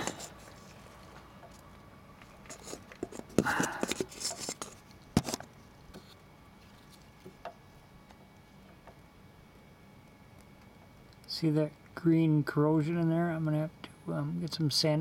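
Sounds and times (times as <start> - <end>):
rustling scrape: 0.0 - 1.2, 2.3 - 7.1.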